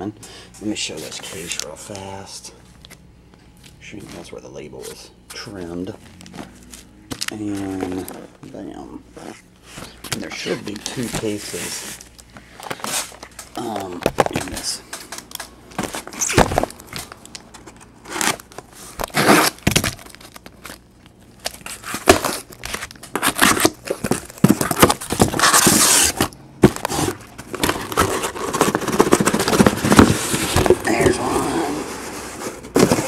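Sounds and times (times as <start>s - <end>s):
cardboard flaps rustling and scraping: 9.7s - 14.8s, 15.8s - 20.4s, 21.5s - 33.0s
packing tape and cardboard tearing: 9.7s - 33.0s.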